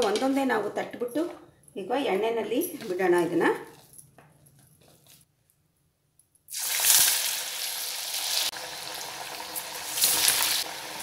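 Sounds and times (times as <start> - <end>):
hot oil sizzling loudly: 6.5 - 11.0.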